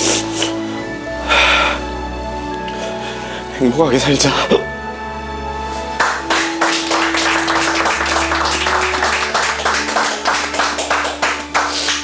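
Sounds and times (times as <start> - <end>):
soft background music: 0.0 - 12.0
group clapping hands: 6.0 - 12.0.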